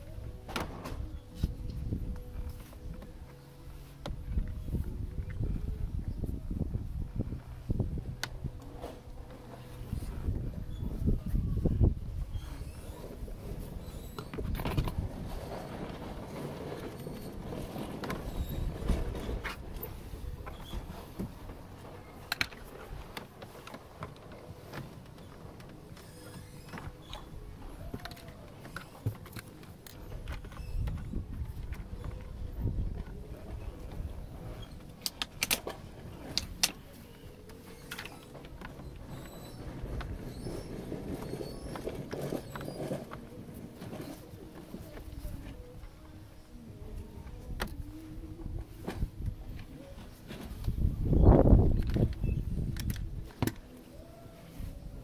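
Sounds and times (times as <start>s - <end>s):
low rumbling handling noise: 0.0s - 55.0s
plastic parts rattling and rustling: 13.2s - 45.9s, 48.6s - 54.0s.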